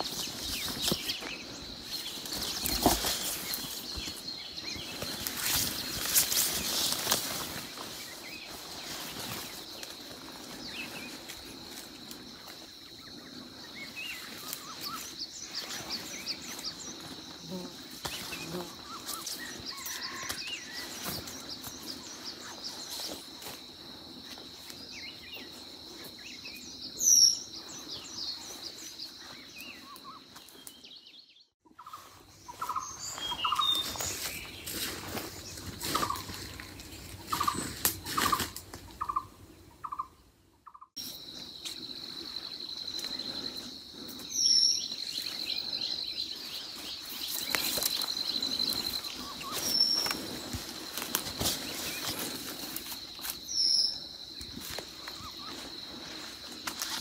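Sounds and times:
footsteps on dry leaves: 0.0 - 12.0, 32.0 - 39.0, 46.6 - 53.6
bird chirps: 25.0 - 50.6.

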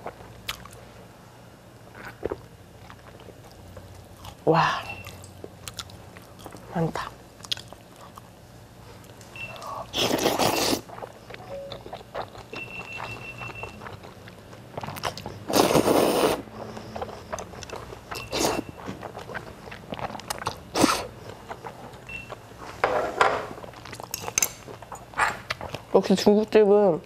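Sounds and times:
chewing: 1.9 - 22.4, 23.7 - 25.8
noodles being slurped: 9.9 - 11.1, 15.2 - 17.6.

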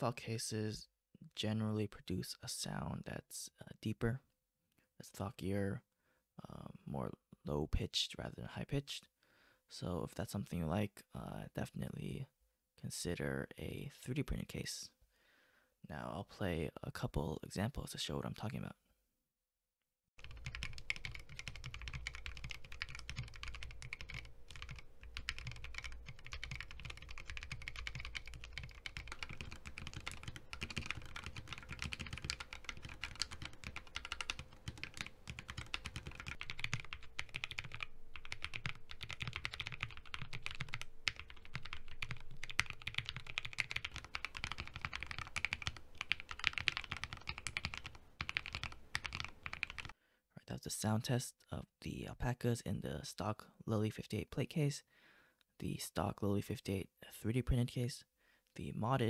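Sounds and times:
mechanical keyboard typing: 20.2 - 50.0.

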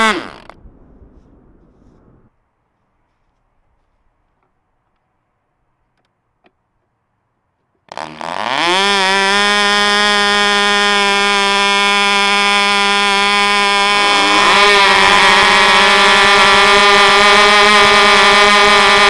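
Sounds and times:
electric starter: 0.0 - 0.6, 7.9 - 19.0
model aircraft engine revving: 0.0 - 0.6, 7.9 - 19.0.

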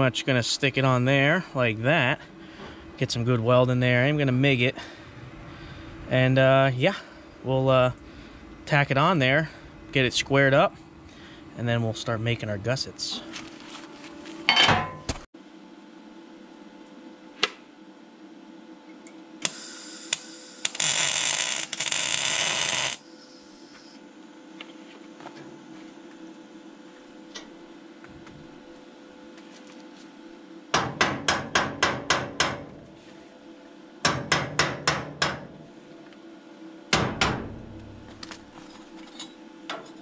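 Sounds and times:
steady low hum: 0.0 - 21.0, 21.6 - 40.0
metal clank: 14.5 - 15.1
welder crackling hiss: 19.4 - 24.0.

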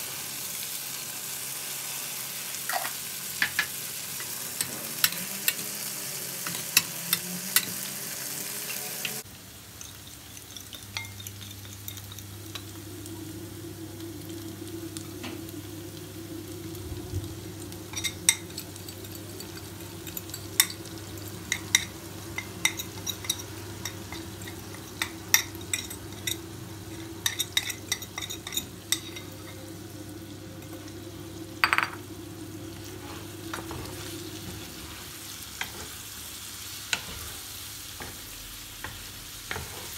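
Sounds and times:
food sizzling in a frying pan: 0.0 - 39.9
steady low hum: 10.6 - 35.9
wooden spoon scraping a pan: 32.8 - 36.0, 36.9 - 38.2, 38.9 - 39.9.

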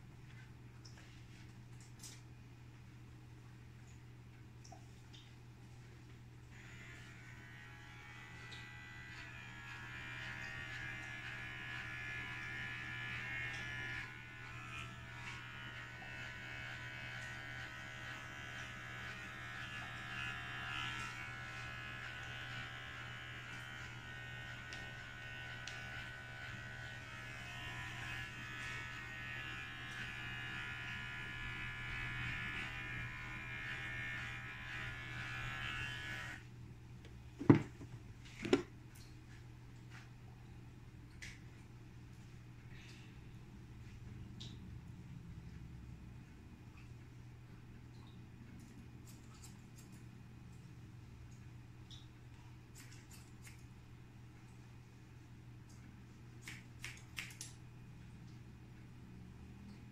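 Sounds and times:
electric hair clipper buzzing: 6.5 - 36.4.

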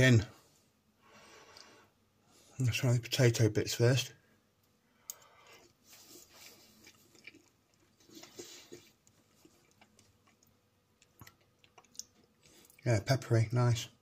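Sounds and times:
person chewing food: 5.0 - 12.8.

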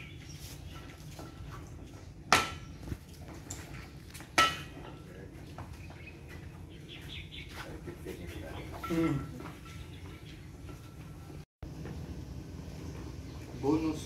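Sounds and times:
metallic clanks of scuba tanks: 4.4 - 5.1, 8.6 - 11.4.

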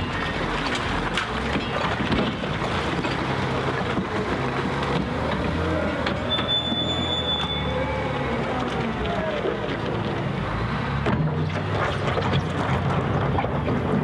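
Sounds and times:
diesel engine under load: 0.0 - 14.0
brief high squeal: 6.3 - 8.0.

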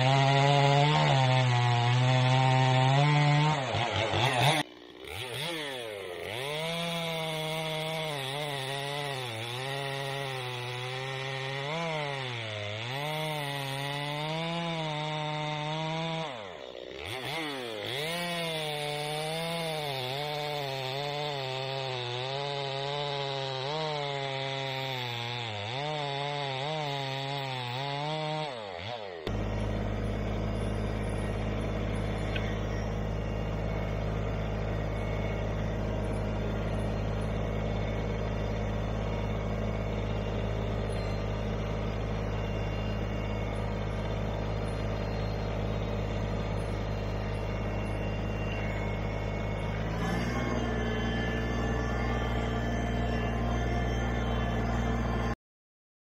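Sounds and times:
chainsaw cutting wood: 0.0 - 55.4
tractor diesel engine running: 29.2 - 55.4.

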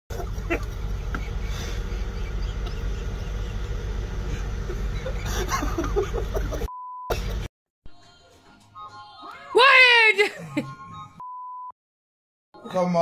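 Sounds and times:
vehicle engine idling: 0.1 - 6.6.

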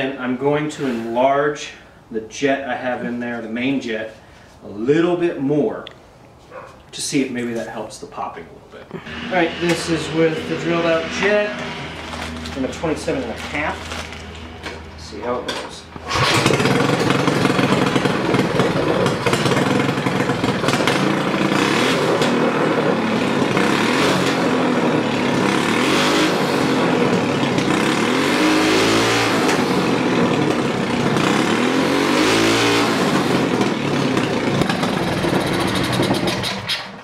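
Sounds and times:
small engine revving: 9.0 - 14.9, 16.0 - 37.0.

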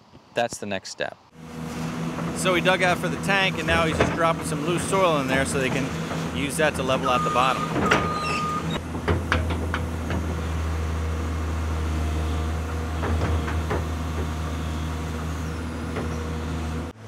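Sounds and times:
excavator diesel engine running: 1.4 - 17.0
short clunks: 3.1 - 10.4.

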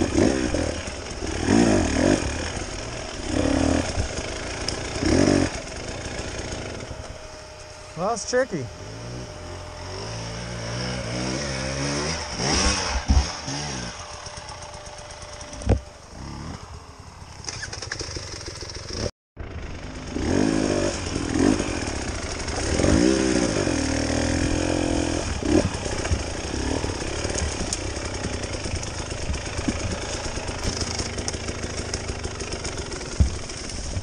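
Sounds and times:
dirt bike engine revving: 0.0 - 34.0.

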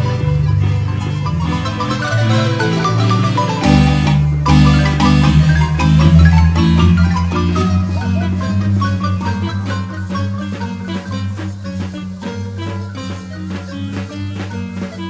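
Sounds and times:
bass line: 0.0 - 15.0
marimba music: 0.0 - 15.0.

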